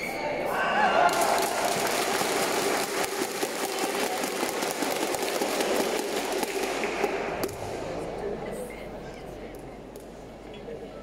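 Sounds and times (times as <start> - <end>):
spectators applauding: 1.0 - 7.2.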